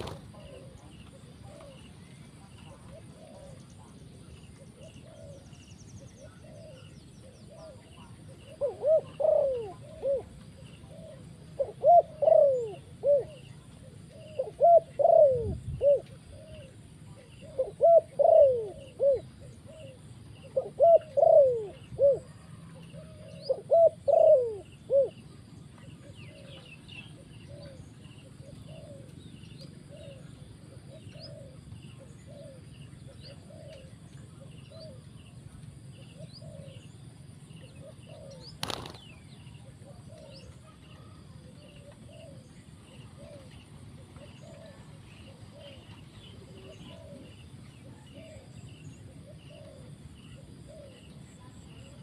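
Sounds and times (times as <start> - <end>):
dove cooing: 0.0 - 52.0.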